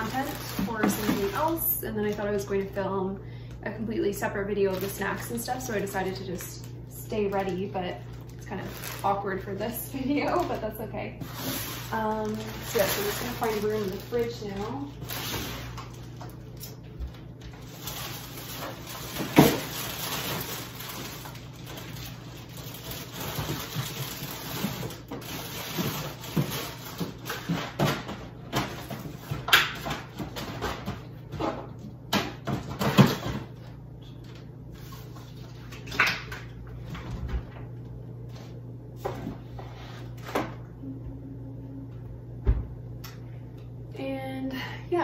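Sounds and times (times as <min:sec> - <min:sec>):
items knocking and clunking: 0:00.0 - 0:02.2, 0:18.5 - 0:20.6, 0:23.1 - 0:33.7
packaging rustling: 0:00.0 - 0:02.7, 0:04.6 - 0:27.8
steady low hum: 0:00.0 - 0:45.0.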